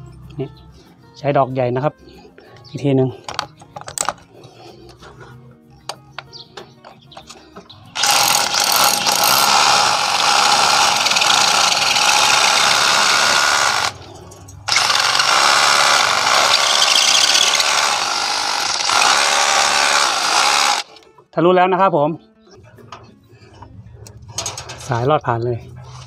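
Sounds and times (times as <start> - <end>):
rotary hammer drilling into masonry: 8.0 - 14.1, 14.7 - 21.0.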